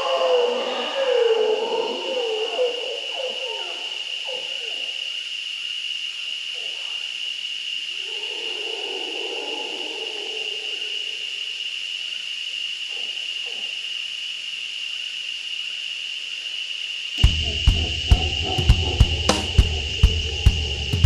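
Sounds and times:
howler monkey roaring: 0:00.0 - 0:05.0, 0:08.0 - 0:11.5, 0:17.2 - 0:21.0.

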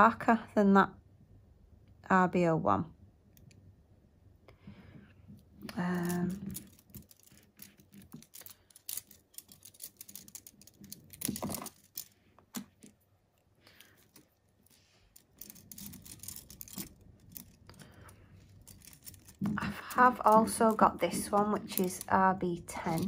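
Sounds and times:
plastic sticks clicking: 0:05.7 - 0:13.0, 0:15.2 - 0:23.0.

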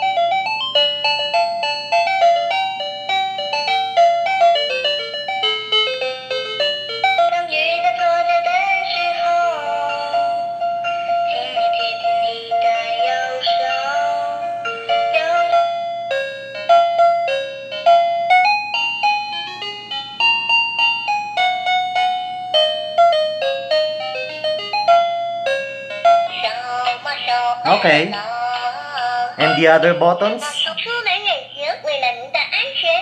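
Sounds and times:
electronic toy melody: 0:00.0 - 0:33.0
synthesized voice singing: 0:26.4 - 0:31.0.

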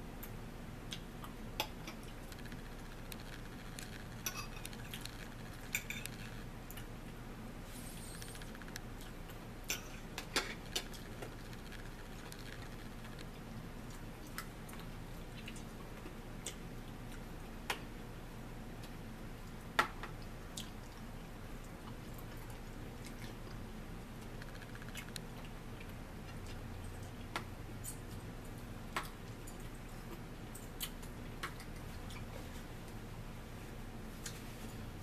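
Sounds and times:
steady low hum: 0:00.0 - 0:35.0
forks tapping on plates: 0:04.2 - 0:06.3.

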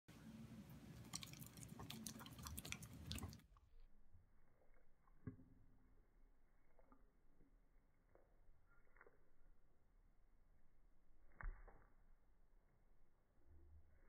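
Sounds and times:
puppy licking and lip smacking: 0:00.6 - 0:03.5.

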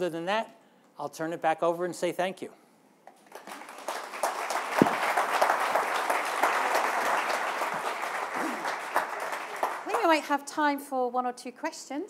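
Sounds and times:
audience applauding: 0:03.3 - 0:10.2.

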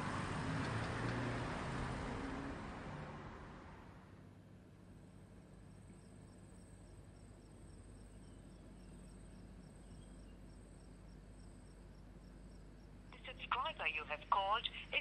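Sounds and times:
faint room hum: 0:04.1 - 0:15.0.

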